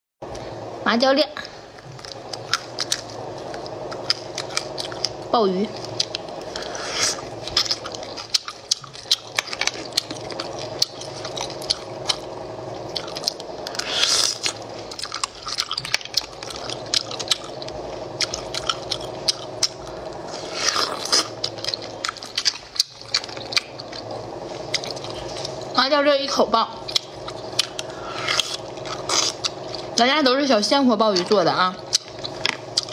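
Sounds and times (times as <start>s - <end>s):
low hum: 0.2s - 32.9s
person sucking food: 5.9s - 9.3s, 13.0s - 15.8s, 18.2s - 22.3s, 27.0s - 29.9s.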